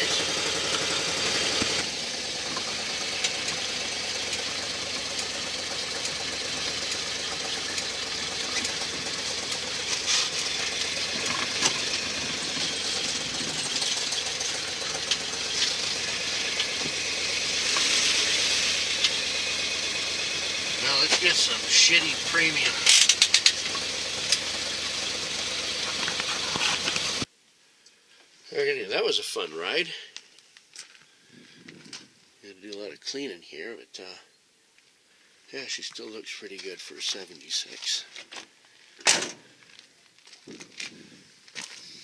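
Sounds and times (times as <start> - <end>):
engine running heard from cab: 0.0 - 27.3.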